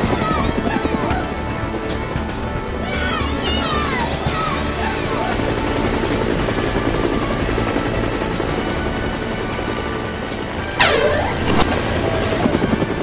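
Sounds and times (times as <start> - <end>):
cartoon helicopter rotor chop: 0.0 - 13.0
sliding whistle tone: 10.6 - 11.8.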